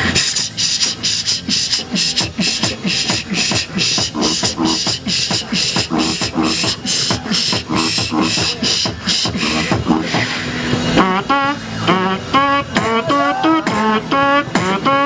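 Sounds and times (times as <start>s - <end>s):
beatboxing: 0.0s - 15.0s
wavering pitched vocal sounds: 0.0s - 15.0s.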